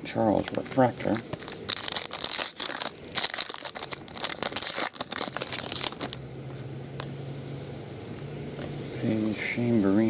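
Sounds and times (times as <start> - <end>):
foil wrapper crinkling and tearing: 0.4 - 6.2.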